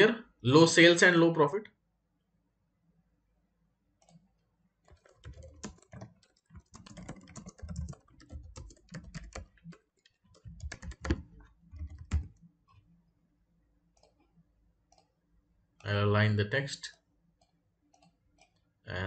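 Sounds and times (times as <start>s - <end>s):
typing on computer keyboard: 4.8s - 12.8s, 14.0s - 14.2s.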